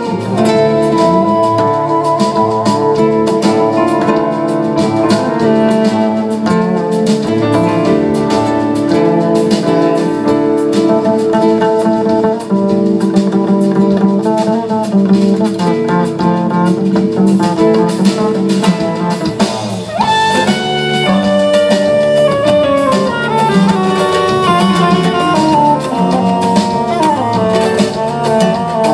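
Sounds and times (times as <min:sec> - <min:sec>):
woodwind playing high notes: 0:00.0 - 0:04.0, 0:19.8 - 0:28.9
acoustic guitar: 0:00.0 - 0:28.9
live band playing: 0:00.0 - 0:28.9.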